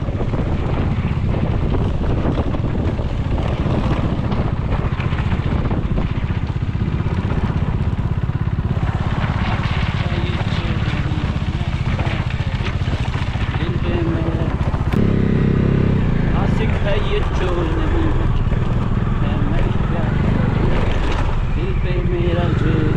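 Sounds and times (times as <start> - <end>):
motorcycle engine running: 0.0 - 22.9.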